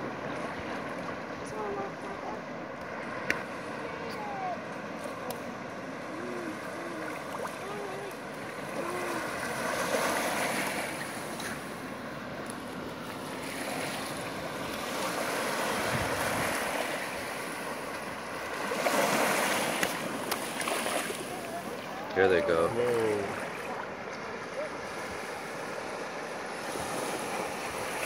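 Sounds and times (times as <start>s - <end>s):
surf washing up a beach: 0.0s - 28.0s.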